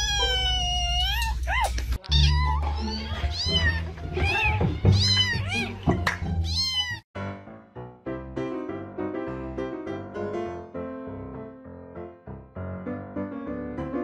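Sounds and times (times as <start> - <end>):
cat meowing: 0.0 - 7.0
piano music: 2.2 - 14.0.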